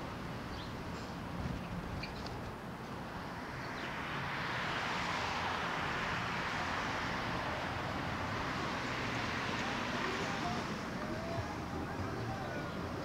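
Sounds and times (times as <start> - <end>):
passing traffic: 0.0 - 13.0.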